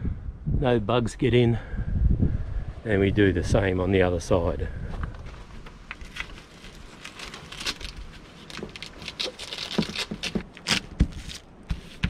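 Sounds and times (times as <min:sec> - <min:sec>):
canvas rustling: 0:05.2 - 0:12.0
velcro crackling and scraping: 0:06.0 - 0:12.0.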